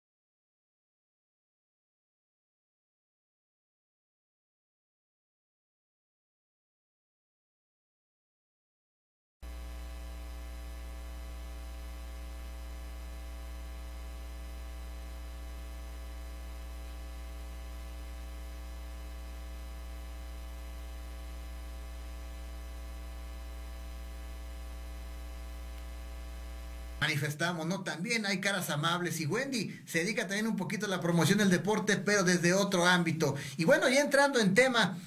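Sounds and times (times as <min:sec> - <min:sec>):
buzz of fixed tones: 0:09.4 - 0:27.1
electrical mains hum: 0:09.4 - 0:35.0.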